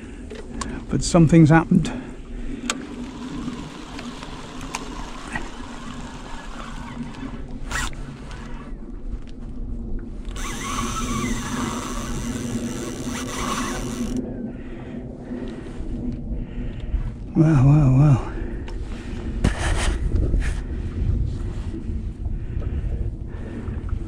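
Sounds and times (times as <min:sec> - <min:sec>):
fishing reel whirring: 0:02.5 - 0:08.9, 0:10.3 - 0:14.2.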